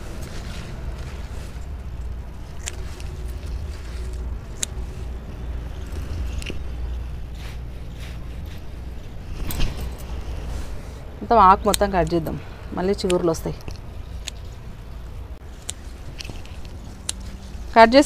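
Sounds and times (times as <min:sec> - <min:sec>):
steady low rumble: 0:00.0 - 0:18.0
plant stems snapping: 0:02.0 - 0:06.7, 0:15.6 - 0:17.5.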